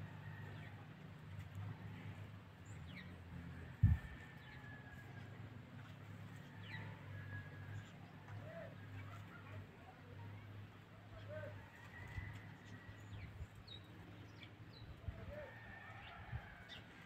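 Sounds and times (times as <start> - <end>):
steady low hum: 0.0 - 7.8.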